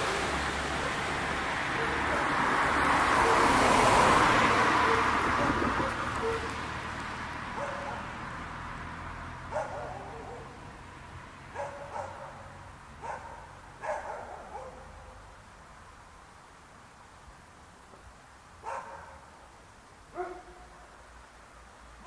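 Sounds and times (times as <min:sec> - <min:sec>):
car driving off: 0:00.0 - 0:11.7
dog barking: 0:01.7 - 0:02.4, 0:03.1 - 0:03.6, 0:04.5 - 0:06.6, 0:07.6 - 0:08.2, 0:09.5 - 0:10.6, 0:11.5 - 0:15.2, 0:18.6 - 0:19.4, 0:20.1 - 0:21.0.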